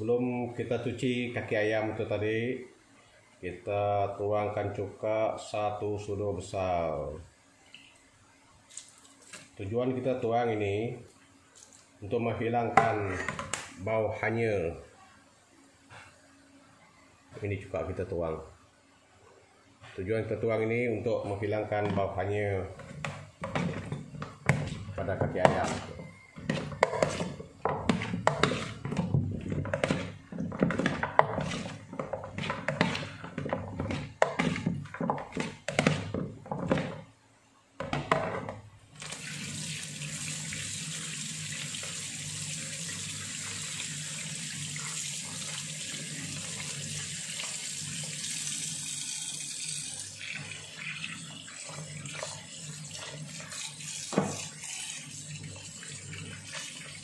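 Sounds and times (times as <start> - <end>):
tap water running into bowl: 39.0 - 57.0.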